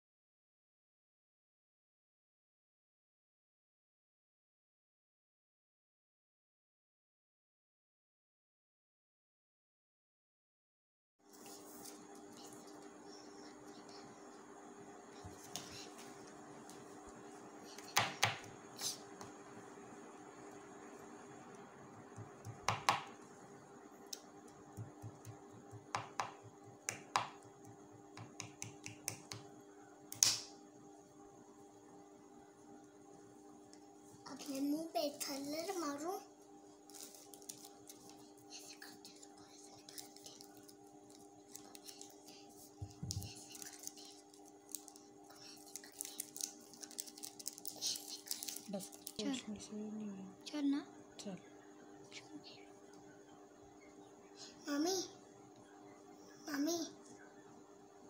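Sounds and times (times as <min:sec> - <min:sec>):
faint steady hum: 0:11.3 - 0:58.0.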